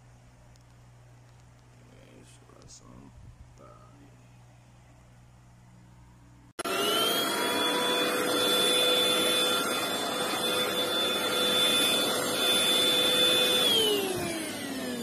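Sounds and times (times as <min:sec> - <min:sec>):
stick vacuum motor whining: 0:06.6 - 0:15.0.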